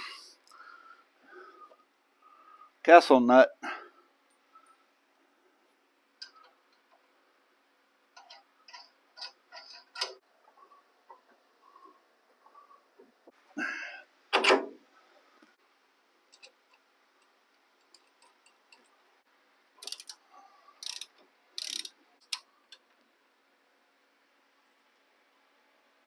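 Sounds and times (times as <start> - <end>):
ratchet wrench clicking: 19.8 - 20.2, 20.8 - 22.8.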